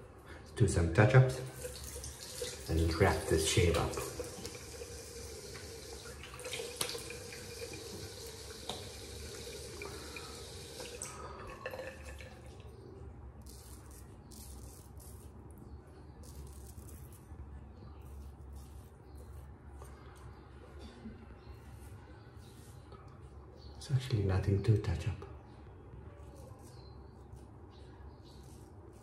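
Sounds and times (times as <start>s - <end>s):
tap water running into a sink: 1.4s - 12.7s.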